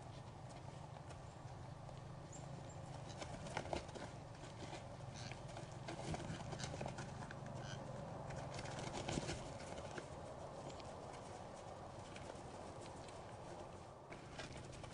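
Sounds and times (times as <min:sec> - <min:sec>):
deer hooves crunching on frozen snow: 0:00.0 - 0:14.9.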